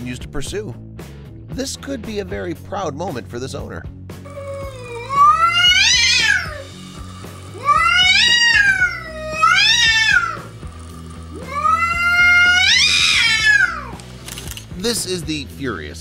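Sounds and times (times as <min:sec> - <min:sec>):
cat yowling: 0:04.3 - 0:14.0.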